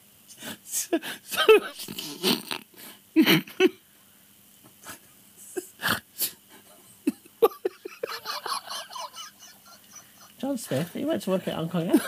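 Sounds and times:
man laughing: 0.8 - 2.6, 3.2 - 3.8, 4.8 - 5.9, 6.5 - 10.4.

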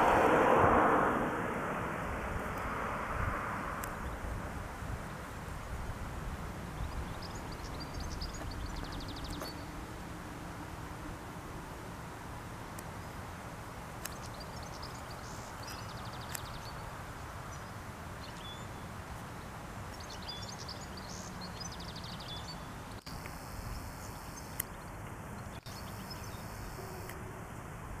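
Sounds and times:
low rumble: 0.0 - 4.4
small birds chirping and trilling: 6.6 - 9.8, 14.0 - 27.2.

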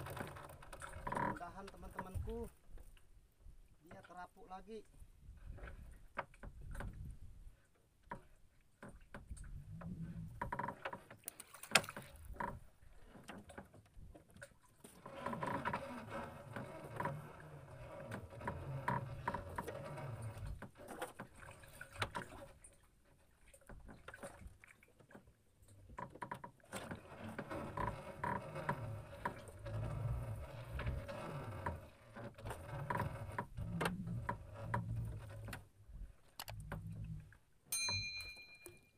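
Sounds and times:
water slapping hull: 0.0 - 38.7
line dragging over wood: 15.0 - 21.1, 26.8 - 35.6.

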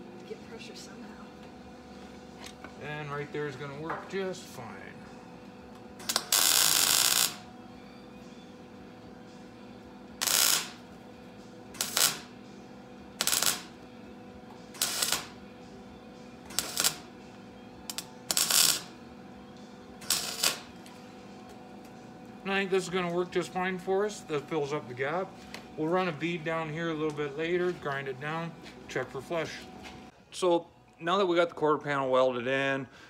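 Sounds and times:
electric welder crackling: 6.0 - 7.5, 10.1 - 11.0, 11.7 - 14.0, 14.6 - 15.6, 16.4 - 17.2, 17.9 - 19.0, 20.0 - 21.0.

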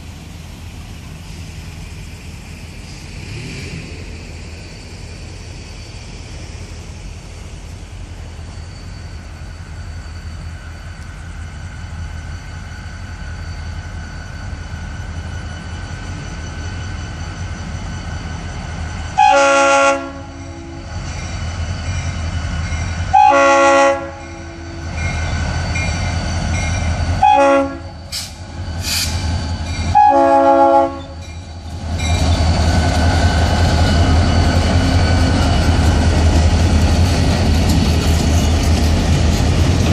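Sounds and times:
diesel engine rumble: 0.0 - 8.6
crossing bell ringing: 8.0 - 39.9
locomotive horn blasts: 19.2 - 20.9, 23.1 - 24.8, 27.2 - 28.0, 29.9 - 31.2.

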